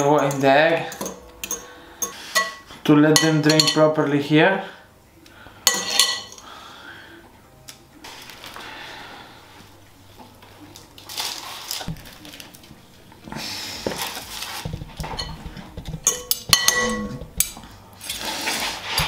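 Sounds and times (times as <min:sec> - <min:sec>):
fork clinking on glass bowl: 0:03.2 - 0:03.8, 0:16.0 - 0:17.2
breadcrumbs rustling: 0:08.0 - 0:15.0.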